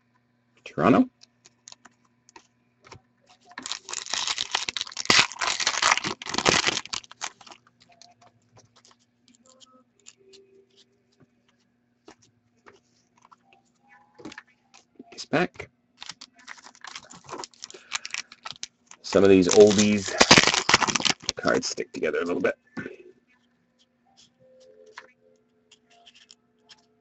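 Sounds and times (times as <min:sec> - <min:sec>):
wrapper being torn open: 0:03.5 - 0:08.0, 0:16.0 - 0:21.8.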